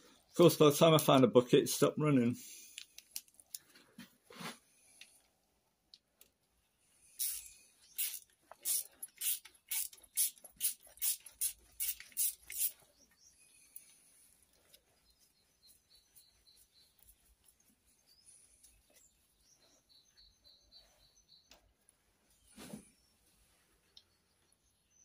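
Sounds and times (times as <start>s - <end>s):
ratchet wrench clicking: 7.2s - 12.7s.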